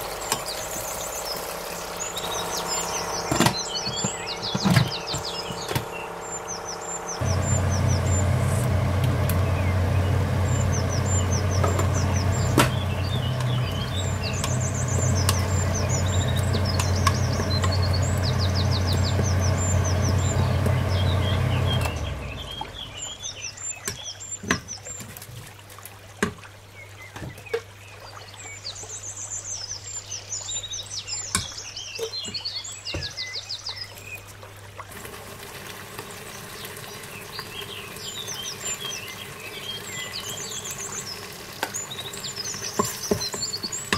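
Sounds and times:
low machine hum: 0.0s - 23.8s
birds chirping: 0.0s - 25.2s, 26.6s - 43.9s.

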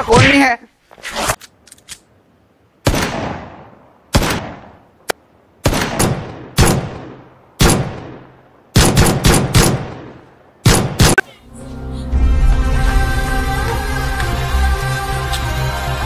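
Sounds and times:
pistol gunshots echoing: 2.8s - 4.8s, 5.6s - 11.2s.

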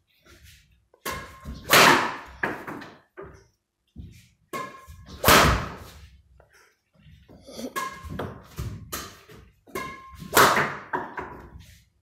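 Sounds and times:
racket hitting shuttlecock: 1.0s - 3.0s, 4.5s - 6.0s, 7.7s - 11.6s.

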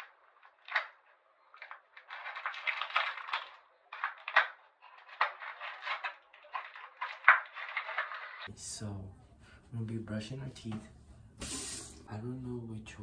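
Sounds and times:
plastic packaging crinkling: 0.0s - 8.5s.

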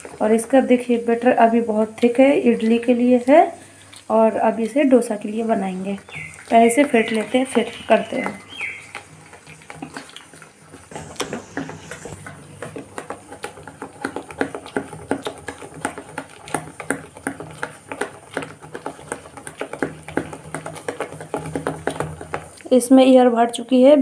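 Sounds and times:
hand slapping wet batter: 5.2s - 22.7s.

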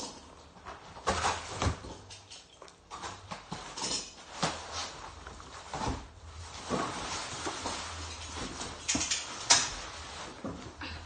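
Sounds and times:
rustling: 2.6s - 11.0s.

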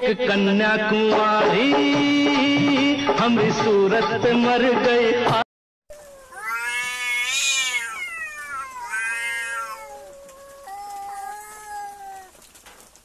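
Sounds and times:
cats yowling: 5.9s - 12.6s.

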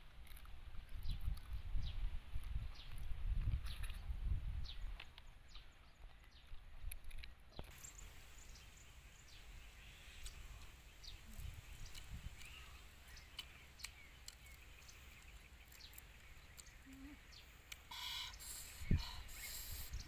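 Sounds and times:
faint bird chirps: 7.6s - 20.0s.

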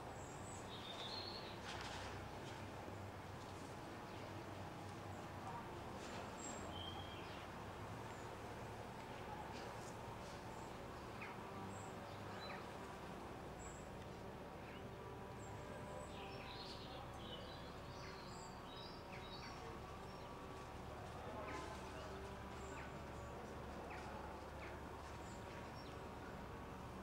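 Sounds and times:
low outdoor background hum: 0.0s - 27.0s
small birds chirping: 0.2s - 1.7s.

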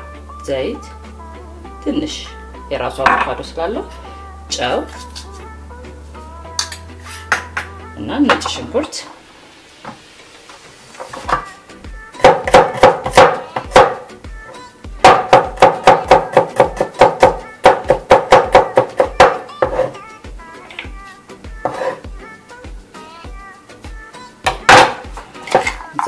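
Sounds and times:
knife chopping on wooden board: 12.2s - 14.0s, 15.0s - 19.9s, 21.7s - 22.0s, 24.5s - 25.8s.

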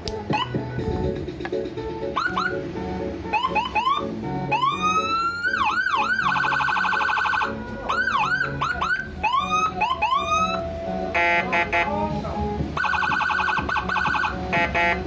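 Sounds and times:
electronic vehicle siren: 0.3s - 0.6s, 2.2s - 2.6s, 3.3s - 11.9s, 12.8s - 15.0s.

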